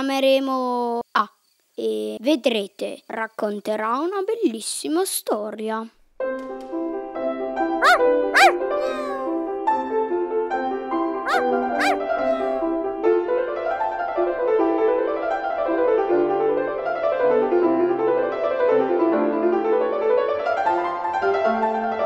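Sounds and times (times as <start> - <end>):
piano music: 6.4 - 22.0.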